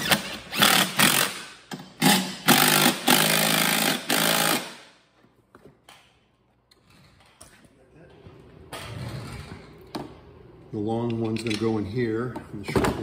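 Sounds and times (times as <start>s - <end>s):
impact driver hammering: 0.0s - 4.9s.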